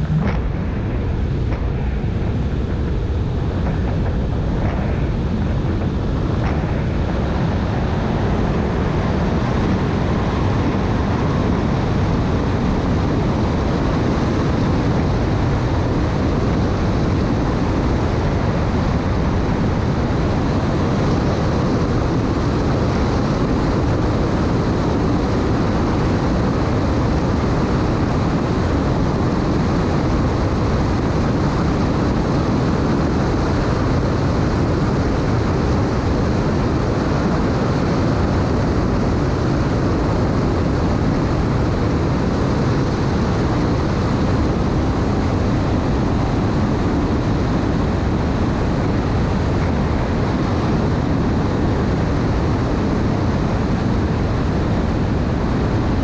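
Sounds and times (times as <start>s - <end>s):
wind rushing: 0.0s - 28.4s
powerboat engine drone: 0.0s - 56.0s.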